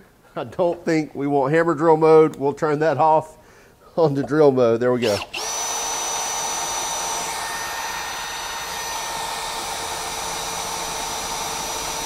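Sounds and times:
drill motor whine: 5.1 - 12.0.

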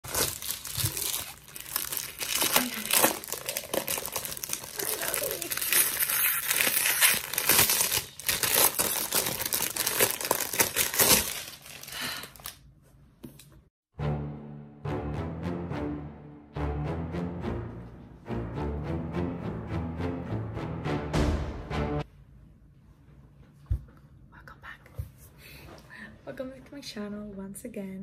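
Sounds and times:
plastic wrap crinkling and tearing: 0.0 - 12.6.

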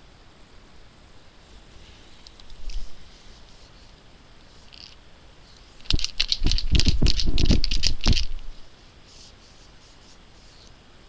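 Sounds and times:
paint pen rattling when shaken: 2.2 - 3.8, 4.5 - 10.6.

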